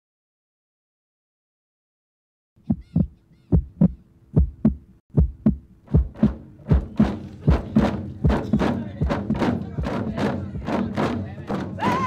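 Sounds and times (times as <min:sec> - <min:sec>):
heartbeat thumps: 0:02.6 - 0:11.0.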